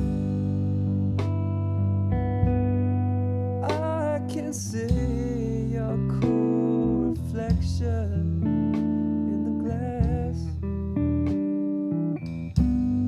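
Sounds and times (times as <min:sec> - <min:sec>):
plucked guitar music: 0:00.0 - 0:13.0.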